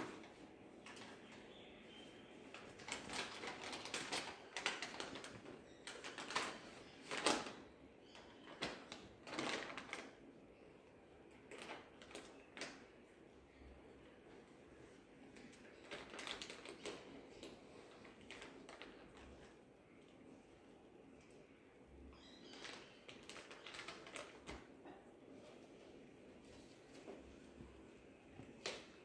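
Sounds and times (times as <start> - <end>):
plastic packet rustling: 2.5 - 7.6, 8.4 - 10.2, 11.4 - 12.9, 15.4 - 19.6, 22.2 - 24.7.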